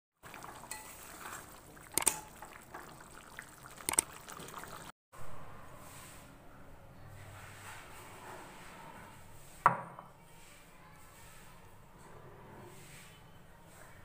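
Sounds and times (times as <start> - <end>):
curry bubbling in a wok: 0.2 - 4.9.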